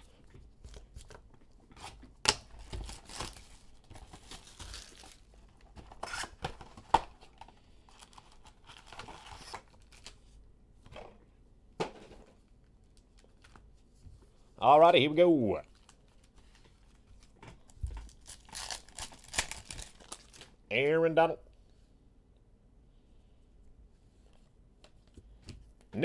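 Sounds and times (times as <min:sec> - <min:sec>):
cardboard and foil tearing: 0:02.3 - 0:05.3, 0:07.9 - 0:10.2, 0:18.1 - 0:20.5.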